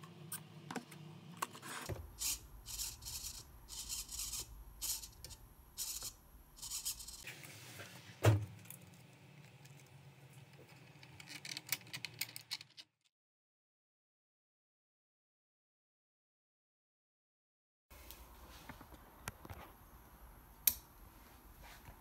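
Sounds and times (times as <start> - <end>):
servo whirring: 1.6 - 7.2.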